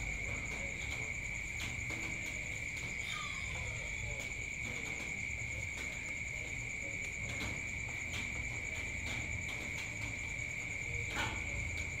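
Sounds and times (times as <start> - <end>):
crickets trilling: 0.0 - 12.0.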